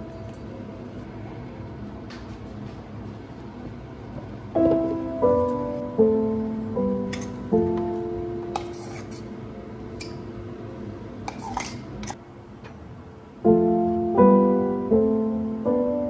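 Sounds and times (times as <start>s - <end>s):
soft piano music: 0.0s - 1.3s, 4.5s - 11.4s, 13.3s - 16.0s
metal spoon scraping jar: 8.6s - 9.3s, 11.3s - 12.2s.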